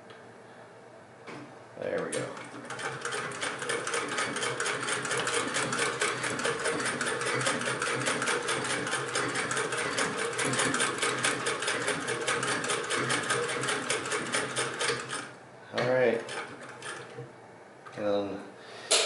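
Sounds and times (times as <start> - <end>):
hand-crank sewing machine clicking: 2.0 - 17.2.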